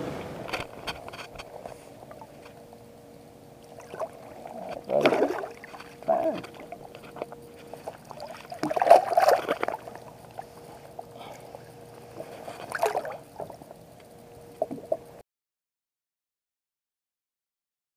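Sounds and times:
faint steady hum: 0:00.0 - 0:15.2
water sloshing and splashing: 0:03.5 - 0:13.8.

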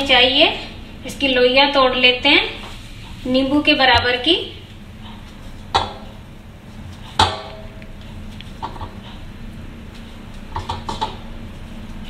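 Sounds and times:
dough knocking into metal bowl: 0:07.2 - 0:07.7
metal bowl ringing: 0:07.2 - 0:07.8.

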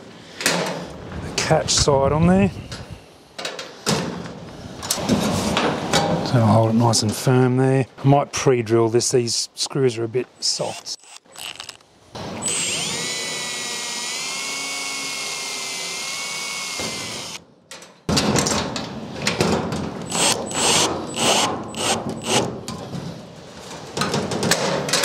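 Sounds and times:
cordless drill whining: 0:10.7 - 0:11.8, 0:12.4 - 0:17.4, 0:20.1 - 0:22.5
drill rattling and grinding: 0:10.7 - 0:17.4, 0:20.0 - 0:22.5.

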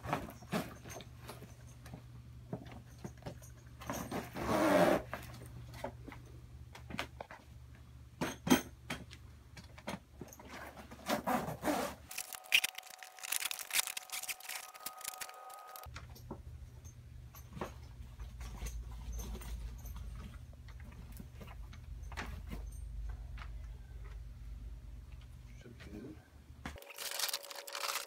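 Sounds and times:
fabric rustling and crinkling: 0:12.0 - 0:15.9, 0:26.8 - 0:28.0.

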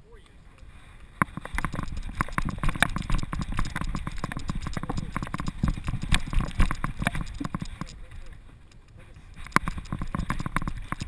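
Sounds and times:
camera mount rattling: 0:01.2 - 0:08.3.

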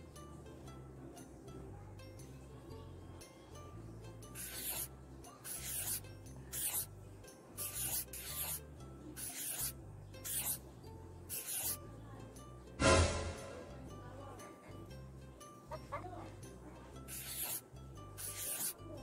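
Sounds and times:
quiet background music: 0:00.0 - 0:19.0
scratchy rubbing noises: 0:04.4 - 0:04.9, 0:05.5 - 0:06.0, 0:06.6 - 0:06.9, 0:07.6 - 0:08.6, 0:09.2 - 0:10.6, 0:11.3 - 0:11.8, 0:17.1 - 0:17.6, 0:18.2 - 0:18.8.

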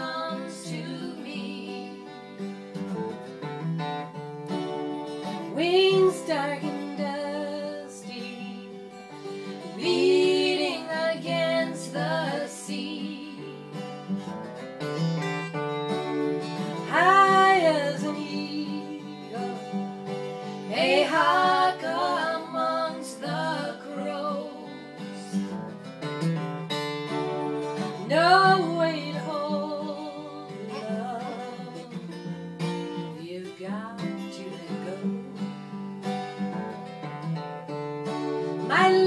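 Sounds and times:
women singing folk song: 0:00.0 - 0:02.6, 0:05.2 - 0:14.0, 0:16.6 - 0:25.6, 0:27.7 - 0:35.8, 0:38.4 - 0:39.0
acoustic guitar: 0:00.0 - 0:39.0.

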